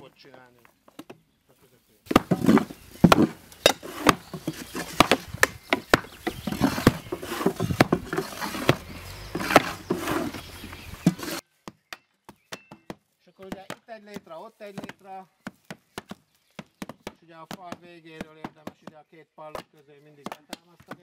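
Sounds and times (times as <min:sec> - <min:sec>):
boots treading: 0:02.1 - 0:11.4
hand rammer tamping earth: 0:02.1 - 0:11.8.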